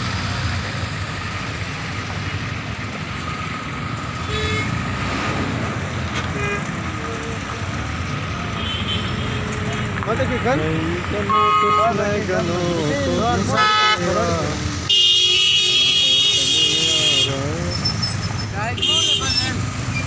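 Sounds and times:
bus and truck engines running: 0.0 - 20.0
vehicle horn toots: 4.2 - 4.8, 8.6 - 9.4, 11.3 - 12.0, 13.5 - 14.1, 14.9 - 17.4, 18.8 - 19.6.

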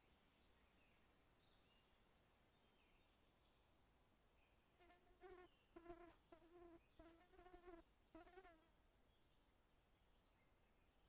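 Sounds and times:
insect buzzing: 4.8 - 8.7.

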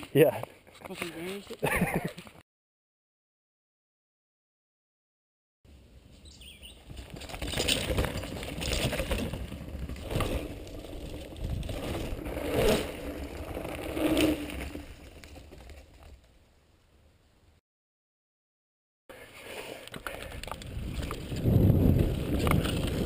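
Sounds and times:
bike tyres on dirt and leaves: 5.8 - 16.7, 19.1 - 23.0
bike clattering over bumps: 6.9 - 16.3.

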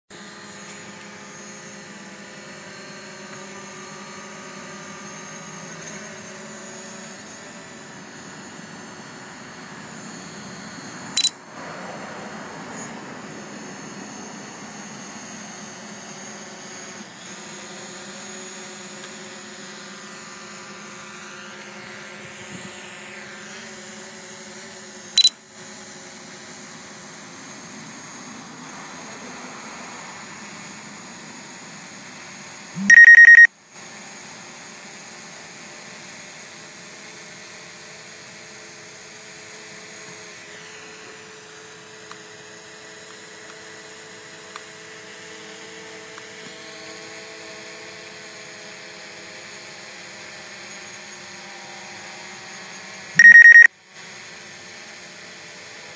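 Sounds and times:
drone propellers humming: 0.2 - 25.1
loud high beep: 32.8 - 33.5, 53.2 - 53.7.

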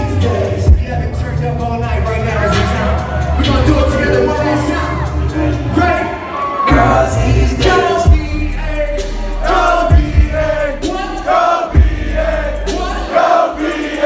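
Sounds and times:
live hip-hop song over pa: 0.0 - 14.0
crowd singing along: 4.9 - 14.0.

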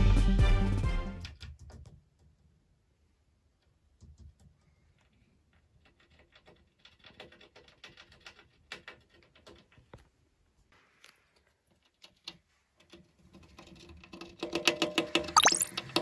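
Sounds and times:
hamster gnawing at cage: 5.5 - 10.0, 11.7 - 14.8.

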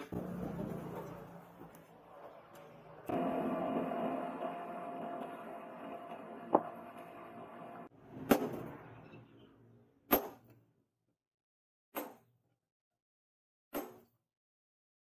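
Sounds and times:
forge air blower humming: 0.0 - 1.6, 2.4 - 7.9.

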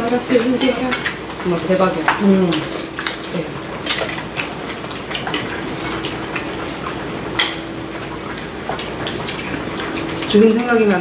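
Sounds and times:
utensils clinking against bowls: 0.0 - 7.7.

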